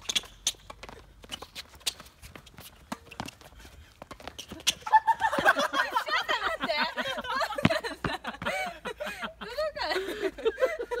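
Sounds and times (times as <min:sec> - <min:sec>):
footsteps and shoe scuffs on court: 0:00.0 - 0:05.6
people laughing: 0:04.6 - 0:11.0.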